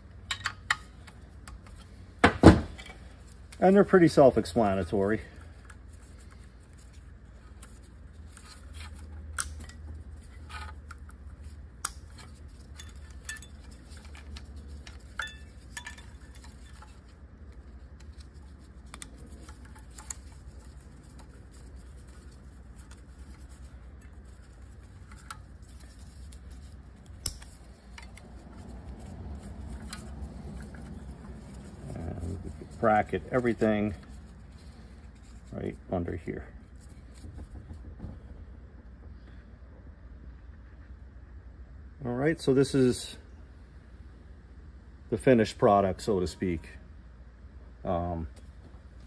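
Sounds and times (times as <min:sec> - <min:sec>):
low steady hum: 0:00.0 - 0:49.0
clicks and rattles of wire connectors: 0:05.4 - 0:34.7.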